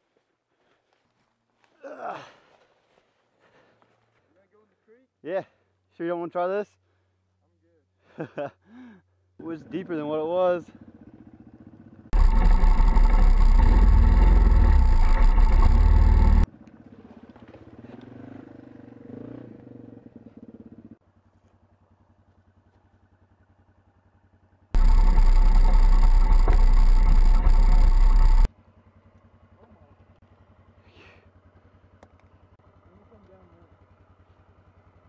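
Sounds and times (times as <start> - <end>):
atv engine running: 10.6 - 35.0.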